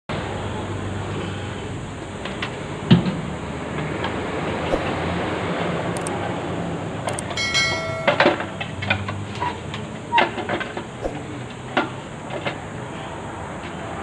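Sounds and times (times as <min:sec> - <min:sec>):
sharp clicks: 0:05.9 - 0:06.2, 0:07.1 - 0:07.4
short bright chime: 0:07.4 - 0:08.8.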